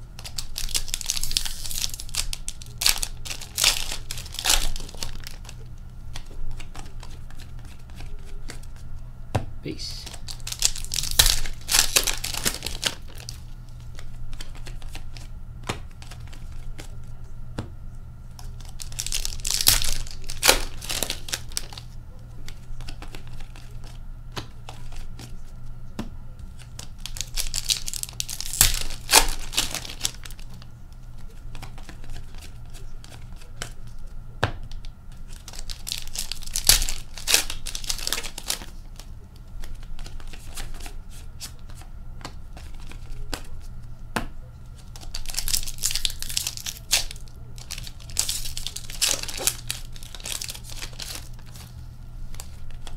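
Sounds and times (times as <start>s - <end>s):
foil card packs tearing and crinkling: 0.2s - 8.8s, 10.0s - 17.0s, 18.4s - 24.0s, 26.6s - 30.7s, 34.8s - 41.9s, 42.5s - 43.7s, 44.8s - 51.7s
cards clicking and flicking: 0.2s - 17.0s, 17.6s - 30.7s, 34.4s - 51.7s.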